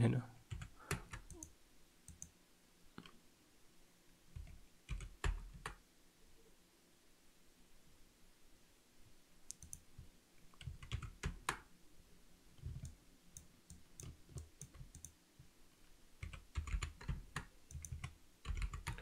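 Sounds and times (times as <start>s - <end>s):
typing on computer keyboard: 0.5s - 1.5s, 2.1s - 2.3s, 4.4s - 5.8s, 9.5s - 9.8s, 10.6s - 11.7s, 12.6s - 15.2s, 16.2s - 19.0s.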